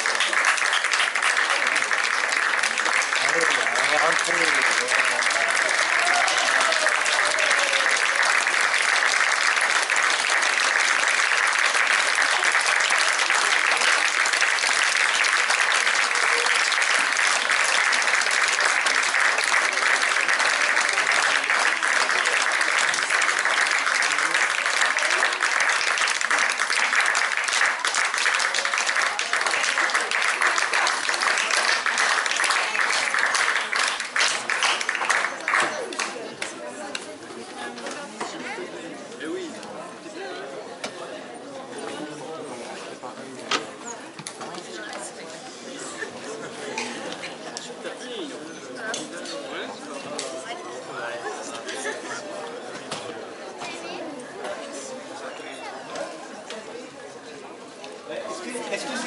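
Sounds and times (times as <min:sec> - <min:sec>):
audience applauding: 0:00.0 - 0:37.0.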